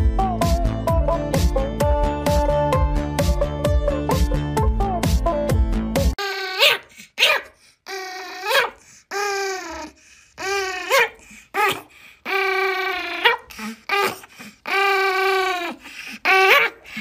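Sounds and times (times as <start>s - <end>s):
dog whining growls: 7.9s - 14.2s.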